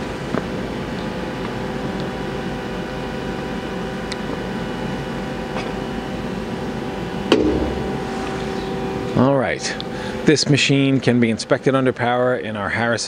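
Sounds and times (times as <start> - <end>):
machine hum idling: 6.6 - 9.2.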